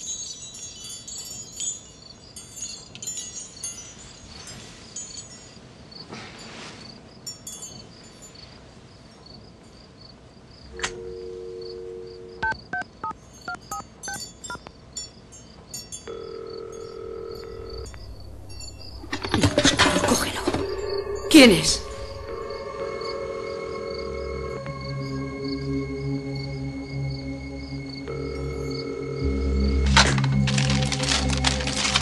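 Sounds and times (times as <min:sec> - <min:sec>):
wind chimes tinkling: 0:00.0 - 0:09.8, 0:13.2 - 0:23.1
dial tone: 0:10.8 - 0:12.8, 0:16.1 - 0:18.2
touch-tone key beeps: 0:12.4 - 0:14.2
ringback tone: 0:13.5 - 0:14.6.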